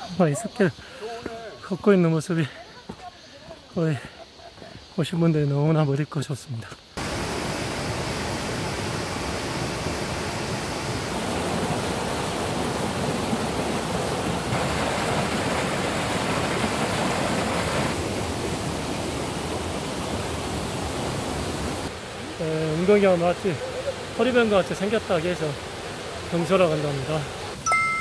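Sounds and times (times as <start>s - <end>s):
water rushing over boulders: 7.0s - 28.0s.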